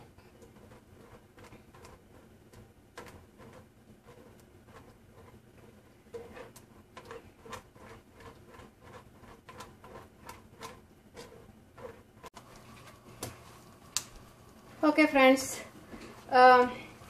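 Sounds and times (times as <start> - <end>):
spatula scraping through strainer: 3.0 - 12.9.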